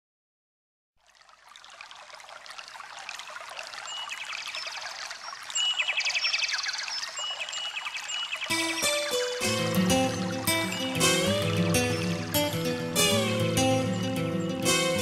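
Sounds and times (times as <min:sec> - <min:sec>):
babbling stream: 0:01.0 - 0:15.0
songbirds chirping and trilling: 0:03.3 - 0:15.0.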